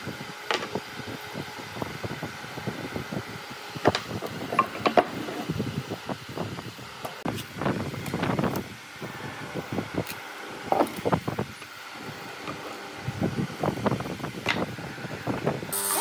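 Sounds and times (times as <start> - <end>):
tools knocking on wooden workbench: 3.9 - 5.1.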